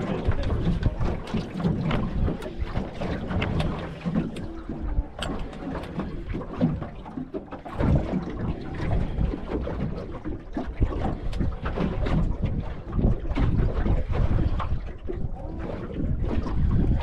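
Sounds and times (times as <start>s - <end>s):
wind gusting on microphone: 0.0s - 6.9s, 10.7s - 17.0s
water slapping boat hull: 0.0s - 17.0s.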